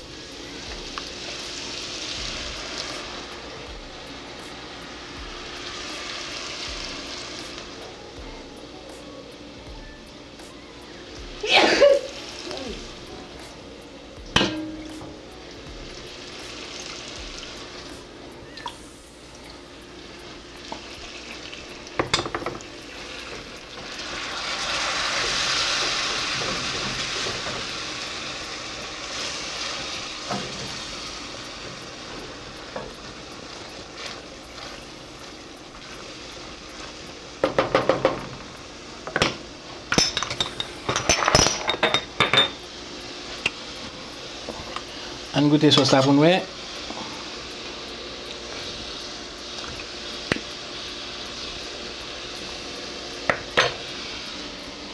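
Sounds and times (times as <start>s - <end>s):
sauce sizzling in a pan: 0.0s - 54.9s.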